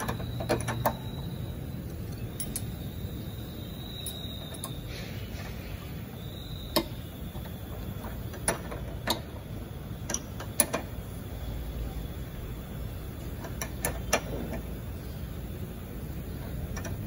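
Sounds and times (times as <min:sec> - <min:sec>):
spanner clinking on metal: 0:00.0 - 0:03.0, 0:06.7 - 0:11.2, 0:13.1 - 0:17.0
low workshop hum: 0:00.0 - 0:17.0.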